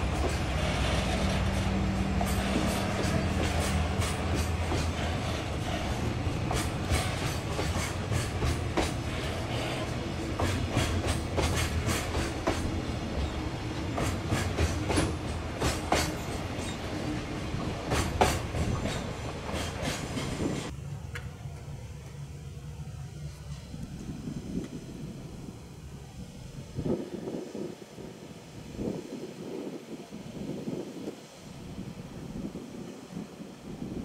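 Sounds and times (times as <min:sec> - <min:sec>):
freight train wheels clacking: 0:00.0 - 0:21.3
train low drone: 0:00.0 - 0:34.0.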